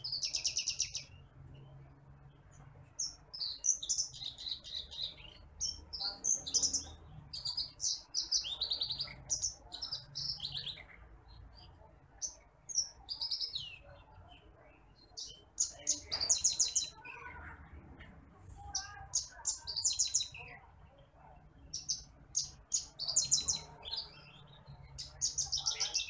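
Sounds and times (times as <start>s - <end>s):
small bird chirping and trilling: 0.0s - 26.0s.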